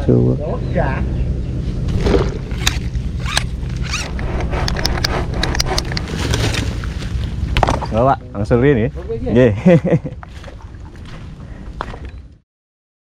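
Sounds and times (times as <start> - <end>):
steady low rumble: 0.0 - 12.4
fishing tackle clicking and scraping: 2.5 - 7.3.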